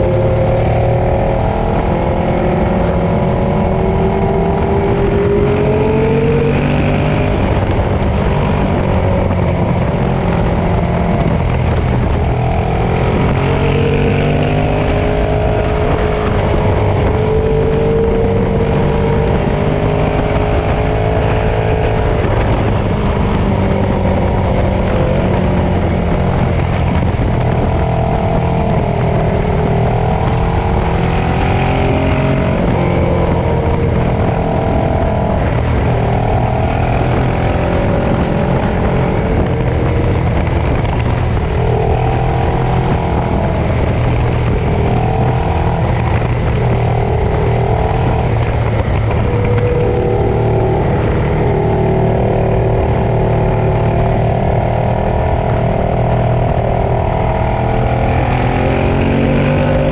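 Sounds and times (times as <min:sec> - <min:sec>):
motorcycle engine running: 0:00.0 - 0:59.9
wind rumble: 0:00.0 - 0:59.9.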